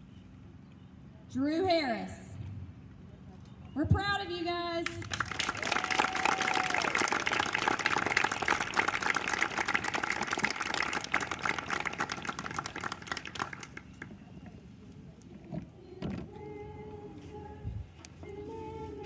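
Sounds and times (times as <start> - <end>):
audience applauding: 5.0 - 14.1.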